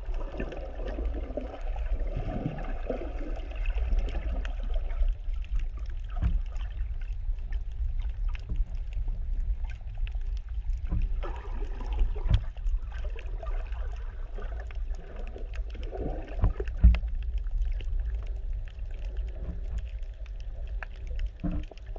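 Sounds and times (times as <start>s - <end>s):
faint crackle: 0.0s - 21.9s
underwater rumble of moving water: 0.0s - 21.9s.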